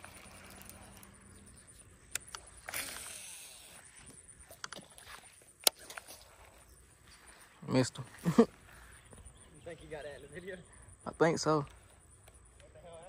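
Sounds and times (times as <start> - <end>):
fishing reel clicks: 0.0 - 3.8.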